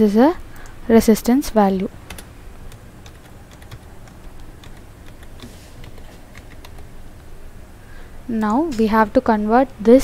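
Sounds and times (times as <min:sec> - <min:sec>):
low steady hum: 0:00.0 - 0:10.0
typing on keyboard: 0:02.1 - 0:06.9.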